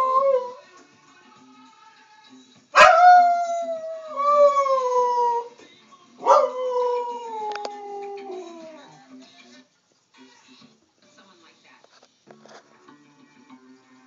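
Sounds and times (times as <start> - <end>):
dog howling: 0.0 - 0.6, 2.8 - 5.6, 6.2 - 8.9
faint television theme music: 0.0 - 14.0.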